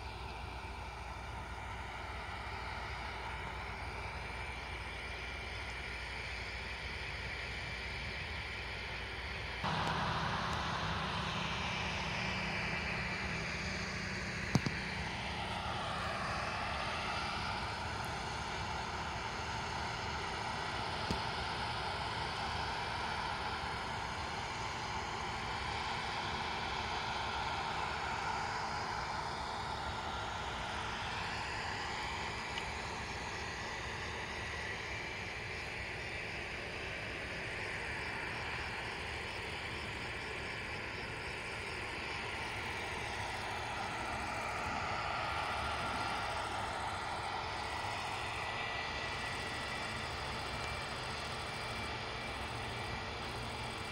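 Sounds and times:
combine harvesters running: 0.0s - 53.9s.

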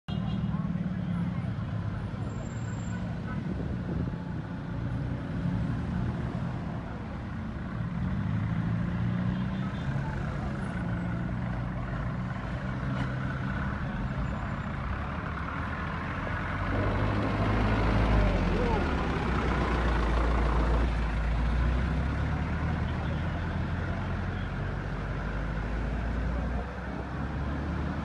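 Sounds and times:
vehicle engines idling: 9.7s - 28.0s.

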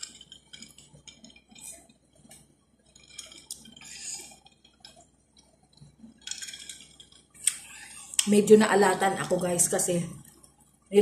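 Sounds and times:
wet chewing and mouth noises: 0.0s - 8.3s.

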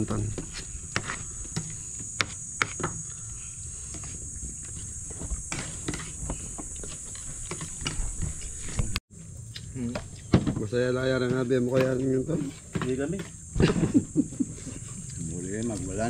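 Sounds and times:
high-pitched insect chirring: 0.0s - 8.7s.

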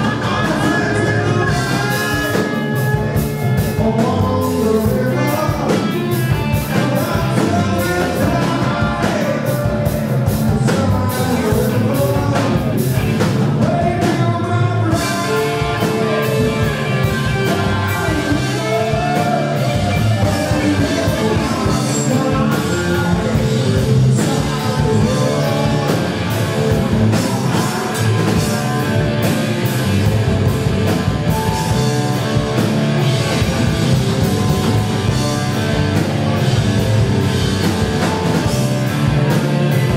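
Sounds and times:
live rock band playing: 0.0s - 39.9s
male lead singer: 0.0s - 39.9s.

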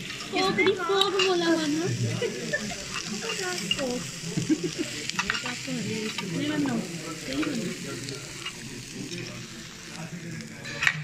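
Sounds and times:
faint voices: 0.0s - 11.0s
steady hiss: 0.0s - 11.0s
cutlery clicking on plates: 5.1s - 6.3s.

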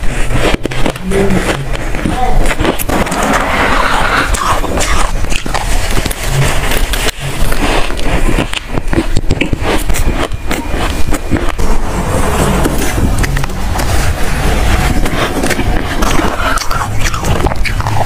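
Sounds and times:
frost crunching being chewed: 0.0s - 18.0s.

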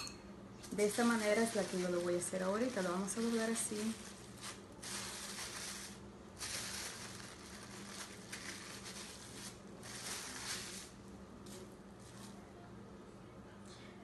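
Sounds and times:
plastic bag crinkling: 0.6s - 11.0s.

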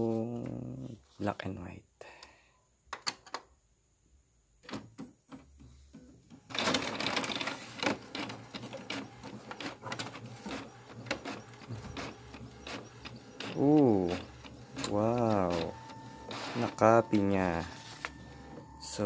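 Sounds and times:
printer whirring: 6.3s - 19.0s
printer clicking: 6.5s - 19.0s.

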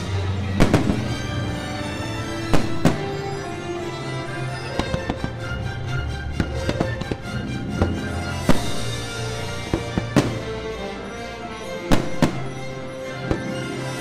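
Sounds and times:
fireworks bangs: 0.0s - 3.7s, 6.4s - 10.8s, 11.9s - 14.0s
music playing: 0.0s - 14.0s.

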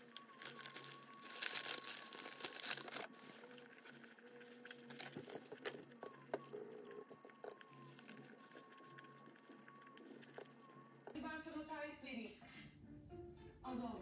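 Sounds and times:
paper and plastic crinkling: 0.0s - 11.2s.

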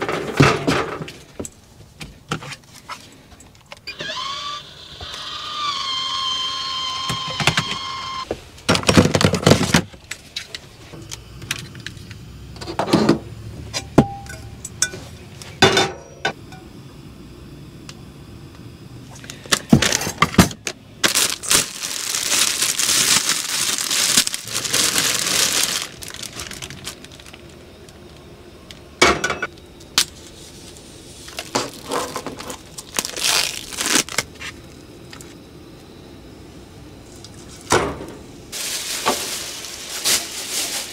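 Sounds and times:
packaging rustling: 21.0s - 28.0s, 30.1s - 34.3s, 38.6s - 40.9s.

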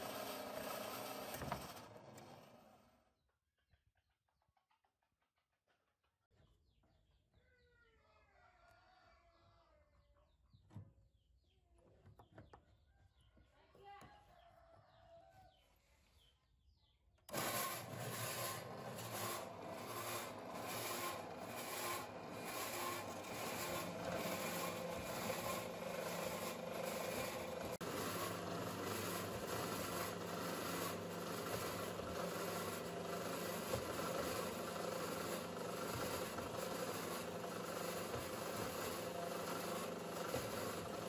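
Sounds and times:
metal cutter motor running: 0.0s - 2.9s, 17.3s - 41.0s
blade rasping on steel: 17.3s - 40.9s.

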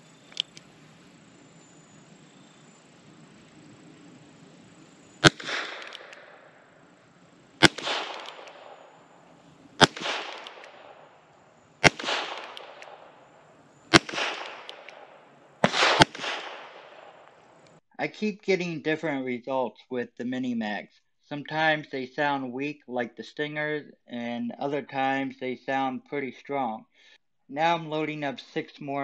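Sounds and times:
sharp click: 0.3s - 0.7s, 5.2s - 6.4s, 7.6s - 8.9s, 9.8s - 11.0s, 11.8s - 13.0s, 13.9s - 17.8s
revolver gunshots with echo: 5.2s - 17.6s.

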